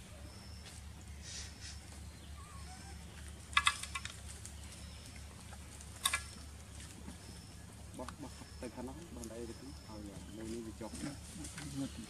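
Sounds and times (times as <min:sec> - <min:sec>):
steady low hum: 0:00.0 - 0:12.0
sharp clicks: 0:03.5 - 0:04.5, 0:05.9 - 0:06.4.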